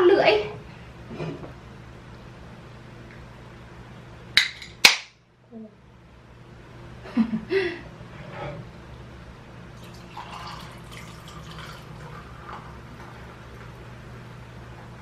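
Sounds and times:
beer pouring and fizzing: 9.7 - 14.0.

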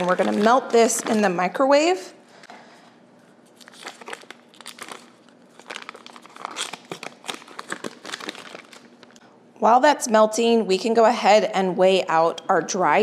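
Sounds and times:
paper wrapper crinkling: 0.0 - 1.5, 3.4 - 9.2.

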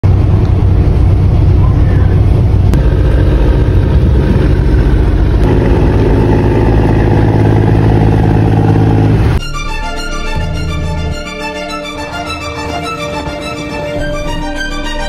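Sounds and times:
boat diesel engine drone: 0.0 - 9.4.

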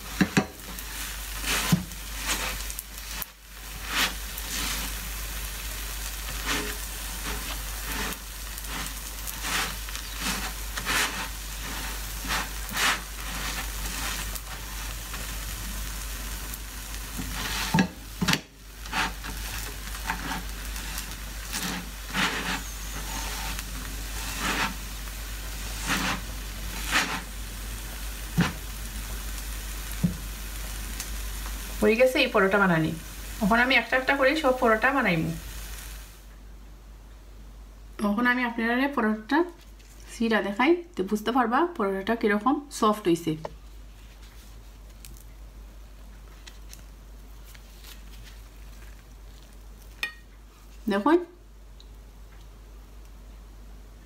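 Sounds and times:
spatula scraping pan: 0.0 - 5.2, 6.2 - 15.3, 17.1 - 25.0, 25.6 - 27.4
flatbread sizzling in frying pan: 0.0 - 36.4, 43.6 - 51.0.

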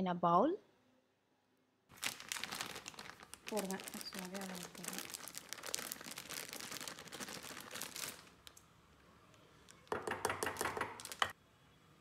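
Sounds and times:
plastic packet crinkling: 1.9 - 8.7, 9.6 - 11.3.

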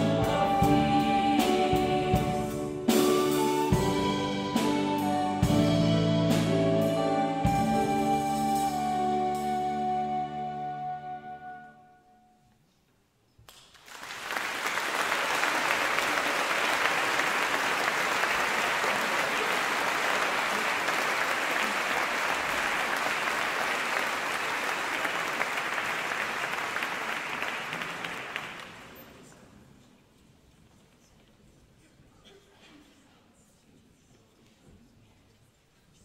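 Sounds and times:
choir holding a chord: 0.0 - 2.9
audience applause: 13.5 - 29.2.

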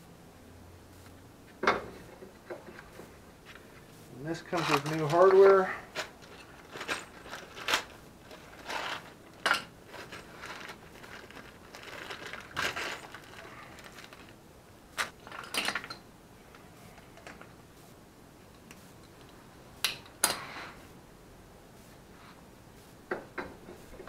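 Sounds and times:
rustling: 0.9 - 18.0.

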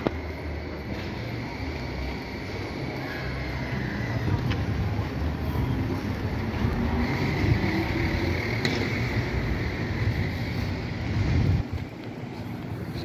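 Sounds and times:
low rumble of traffic: 0.0 - 13.0.

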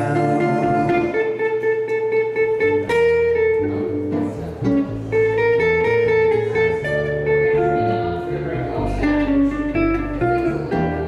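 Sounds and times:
jazz guitar playing chords: 0.0 - 11.0
upright bass: 0.0 - 11.0.

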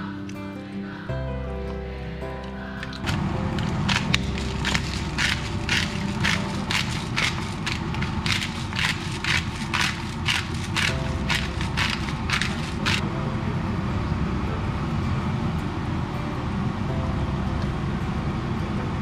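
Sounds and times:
pepper mill grinding: 2.8 - 13.0.

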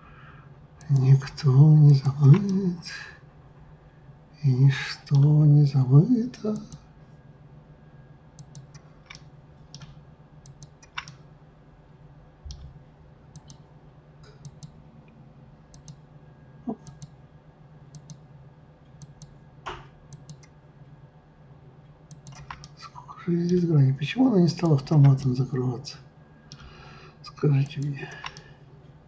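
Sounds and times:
low steady hum: 0.0 - 29.0
mouse and keyboard clicks: 8.4 - 11.2, 22.1 - 22.8.

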